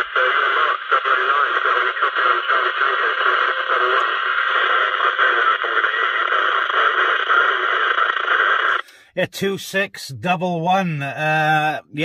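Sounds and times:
weak radio voice under noise: 0:00.0 - 0:09.5
radio static and hiss: 0:00.0 - 0:12.0.

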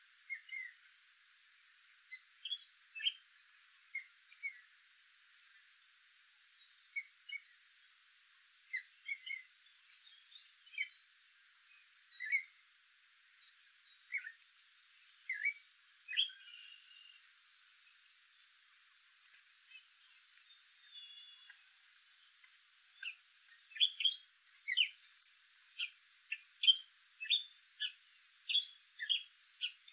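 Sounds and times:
catbird singing: 0:12.2 - 0:12.5, 0:14.1 - 0:14.4, 0:15.3 - 0:17.2, 0:20.8 - 0:21.6, 0:23.0 - 0:25.0, 0:25.8 - 0:29.9.

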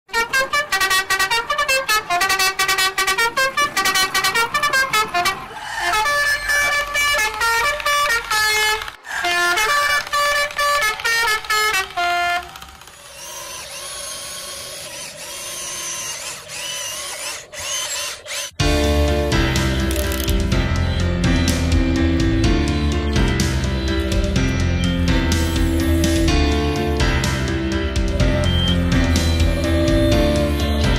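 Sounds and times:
staccato electronic horn melody: 0:00.1 - 0:12.7, 0:18.6 - 0:30.9.

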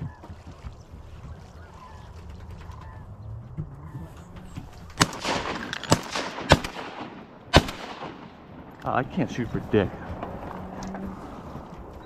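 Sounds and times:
shotgun shots: 0:05.0 - 0:08.6.

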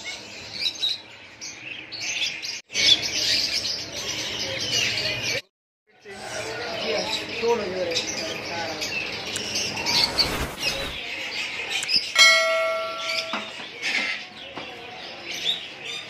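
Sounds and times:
background chatter: 0:03.0 - 0:16.0
birds chirping: 0:06.0 - 0:16.0
bell-like chime: 0:12.2 - 0:13.6.

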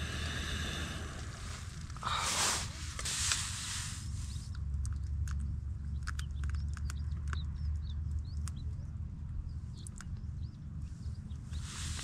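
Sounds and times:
broad hiss: 0:00.0 - 0:04.5, 0:11.6 - 0:12.0
low rumble: 0:00.0 - 0:12.0.

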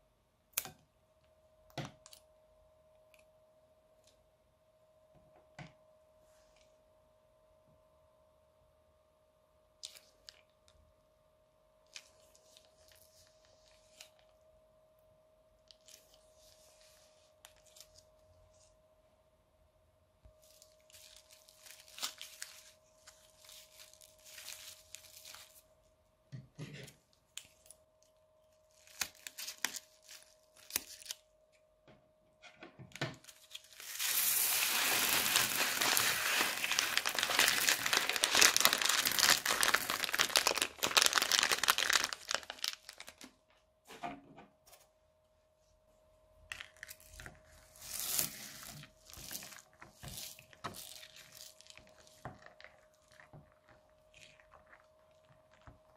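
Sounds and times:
plastic bag crinkling: 0:20.4 - 0:25.6, 0:33.2 - 0:43.3, 0:46.6 - 0:55.7
beads pouring and rattling: 0:33.7 - 0:43.0
spatula stirring slime: 0:47.3 - 0:55.9.

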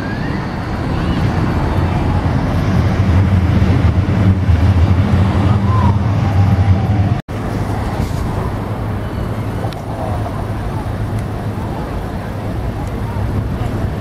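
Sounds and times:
traffic rumble: 0:00.0 - 0:14.0
faint voices: 0:05.5 - 0:14.0.

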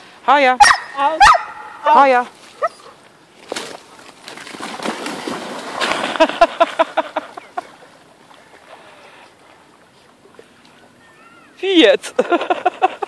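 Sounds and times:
water splashing and sloshing: 0:01.5 - 0:13.0.

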